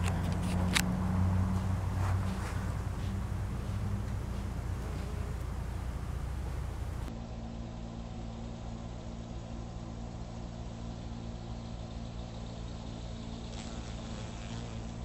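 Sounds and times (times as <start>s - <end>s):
faint ticks: 0.0s - 7.1s
honeybee buzzing: 0.0s - 7.1s, 13.4s - 15.0s.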